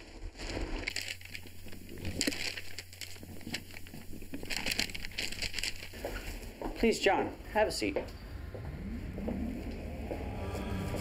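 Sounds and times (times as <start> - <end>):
low steady hum: 7.3 - 11.0.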